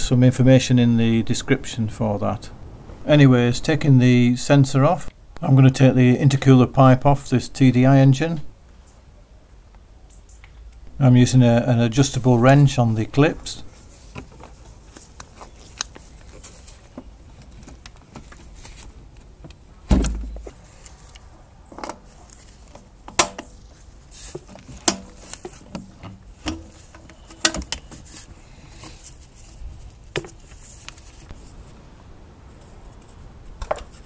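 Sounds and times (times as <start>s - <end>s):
heavy low thump: 19.9s - 20.5s.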